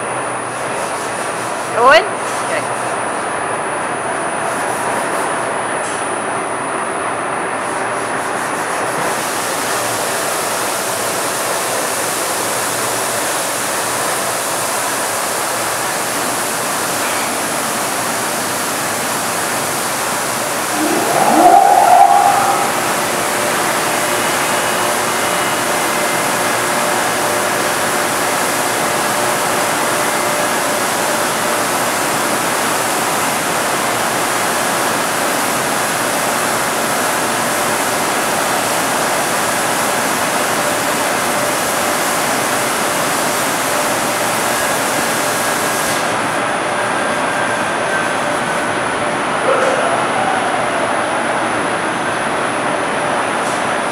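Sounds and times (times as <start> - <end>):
machine whine: 20.4 - 24.5.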